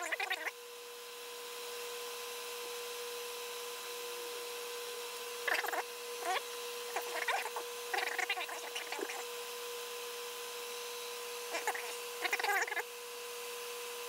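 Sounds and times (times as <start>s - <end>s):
fan humming: 5.1s - 9.8s, 11.2s - 13.0s.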